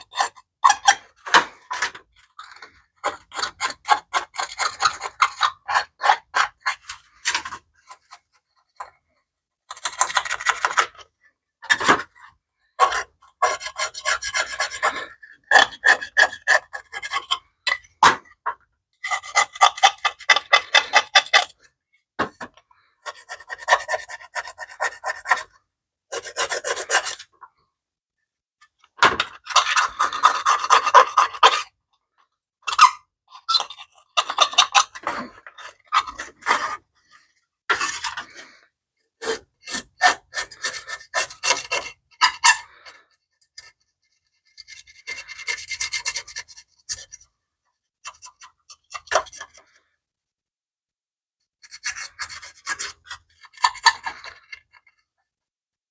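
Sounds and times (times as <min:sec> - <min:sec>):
hand tool scraping metal: 0:12.8 - 0:17.8, 0:29.3 - 0:31.7, 0:39.2 - 0:47.2, 0:51.6 - 0:55.0.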